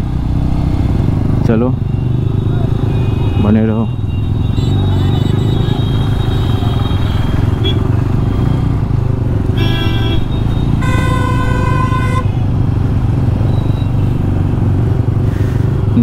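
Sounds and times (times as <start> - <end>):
motorcycle engine running: 0.0 - 16.0
vehicle horn honking: 2.0 - 8.7, 9.6 - 12.4.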